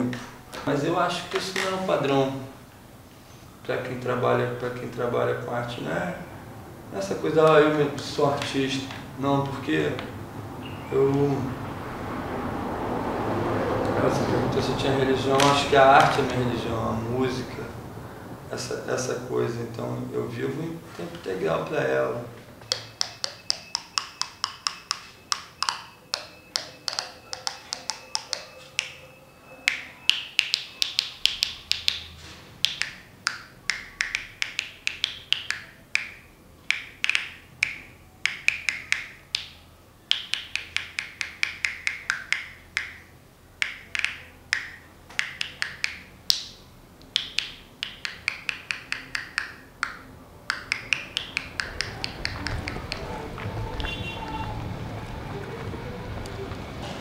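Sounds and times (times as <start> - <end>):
pencil tapping on teeth: 22.6 - 29.0, 29.7 - 54.0.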